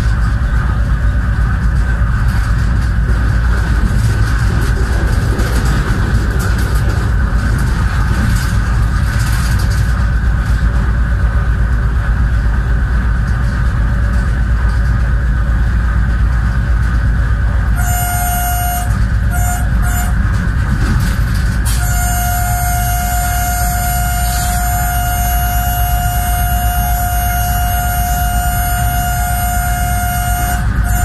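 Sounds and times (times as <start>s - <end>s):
locomotive engine and wheels rumbling: 0.0s - 31.0s
train horn blasts: 17.7s - 20.4s, 21.6s - 31.0s.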